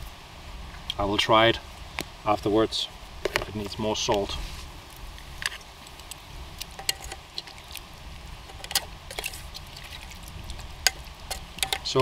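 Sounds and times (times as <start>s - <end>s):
cooking utensils clicking: 10.9s - 12.0s.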